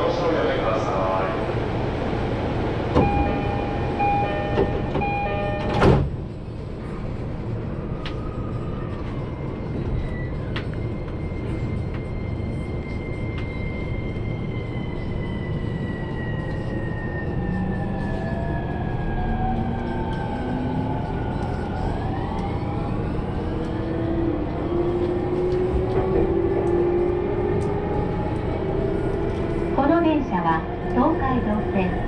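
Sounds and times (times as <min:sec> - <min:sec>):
train carriage rumble: 0:00.0 - 0:32.0
sliding doors shutting: 0:02.9 - 0:06.2
two-tone door chime: 0:03.0 - 0:06.0.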